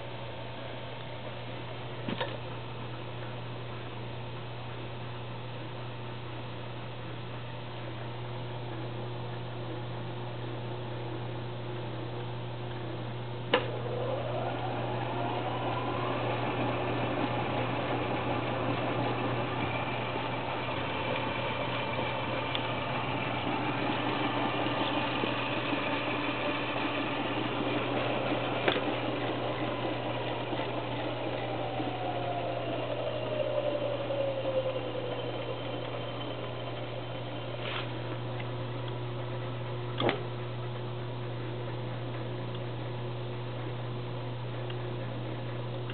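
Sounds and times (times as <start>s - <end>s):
low hum: 0.0s - 45.9s
washing machine drum whine: 11.6s - 45.8s.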